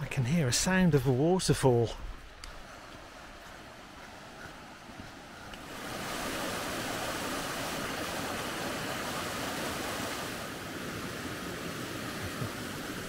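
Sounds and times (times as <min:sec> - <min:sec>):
waterfall rushing over rocks: 0:05.6 - 0:13.0.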